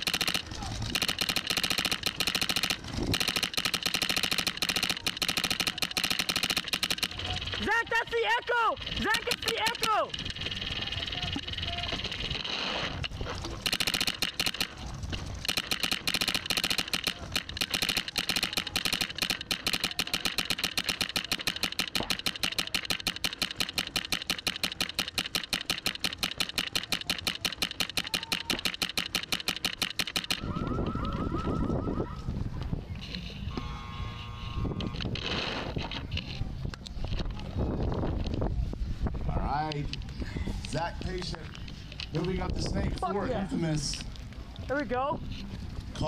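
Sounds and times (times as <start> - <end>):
paintball marker rapid firing: 0.0 - 30.6.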